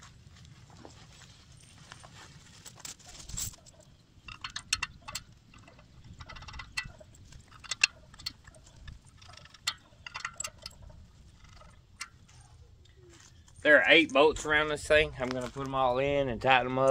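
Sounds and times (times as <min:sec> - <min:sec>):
metal bolts clinking on steel: 0:03.2 - 0:12.5.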